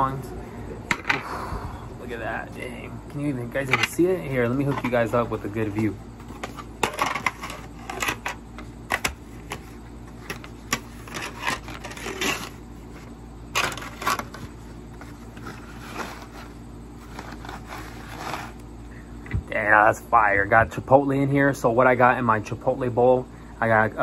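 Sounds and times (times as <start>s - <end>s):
food containers clicking and crinkling: 3.6s - 18.7s.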